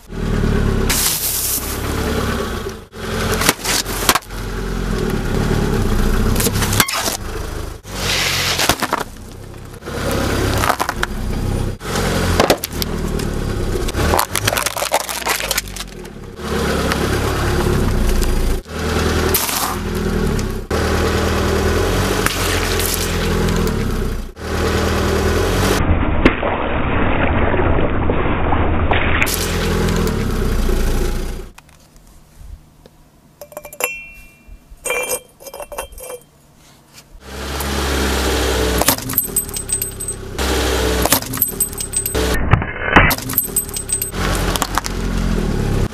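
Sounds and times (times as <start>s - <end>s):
tyre crushing objects: 8.2s - 9.2s
light clinks: 33.4s - 36.3s, 39.0s - 40.2s, 41.2s - 42.2s, 43.2s - 44.2s
glass breaking: 43.0s - 44.2s.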